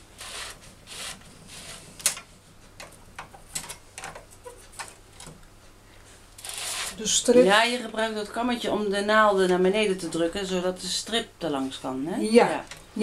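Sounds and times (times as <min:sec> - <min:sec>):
knitting machine needles clicking: 0:06.4 - 0:07.0.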